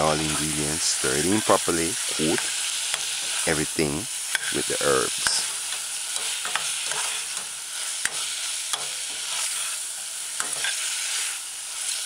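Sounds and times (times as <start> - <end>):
food sizzling in oil: 0.0 - 12.0
metal spoon clicking on pan: 6.2 - 9.1.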